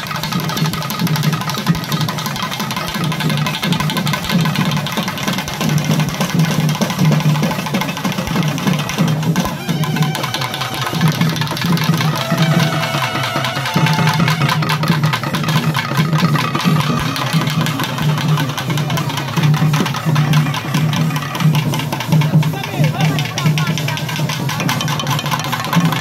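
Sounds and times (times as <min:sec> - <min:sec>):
drums beating steady rhythm: 0:00.0 - 0:26.0
trumpet playing held notes: 0:08.8 - 0:15.2.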